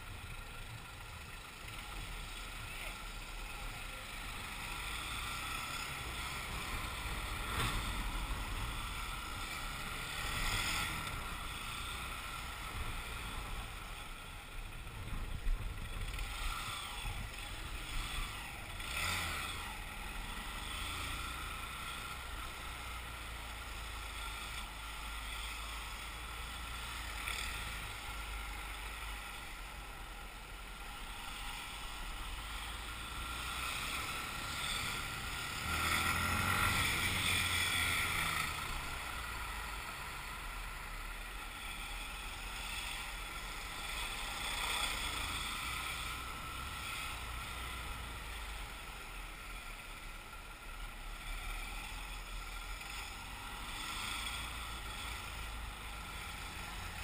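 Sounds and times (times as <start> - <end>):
motorcycle engine rumble: 0.0 - 57.0.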